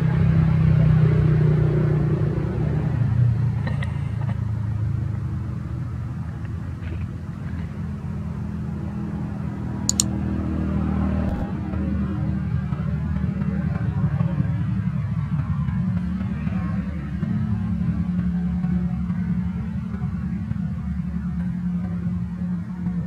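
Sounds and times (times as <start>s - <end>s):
short sharp click: 11.3s - 11.5s.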